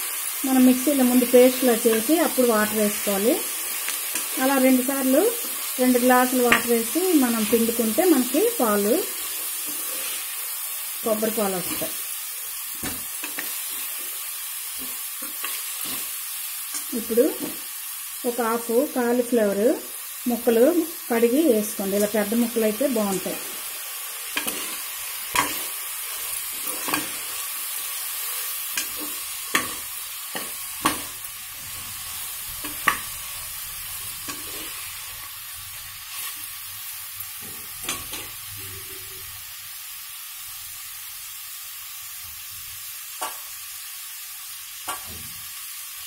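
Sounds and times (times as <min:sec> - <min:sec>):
vegetables sizzling in oil: 0:00.0 - 0:46.0.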